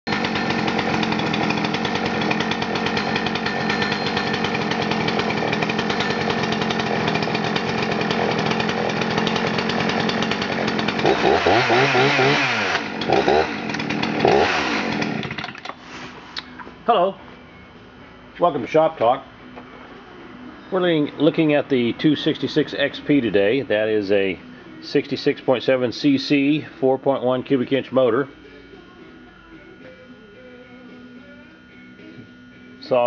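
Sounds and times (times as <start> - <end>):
chainsaw engine revving: 0.1 - 15.8.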